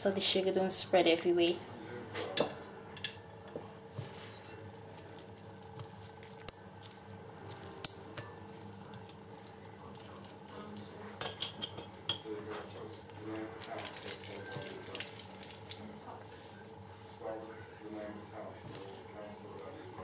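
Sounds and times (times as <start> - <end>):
glass clinking: 7.4 - 8.8, 11.2 - 12.3.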